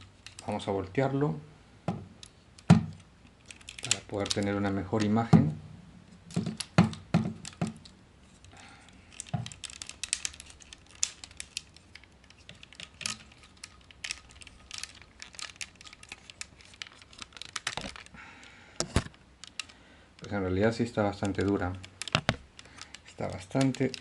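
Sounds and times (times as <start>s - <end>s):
plastic figure clicking: 9.1s - 18.1s, 18.9s - 19.8s, 21.2s - 24.0s.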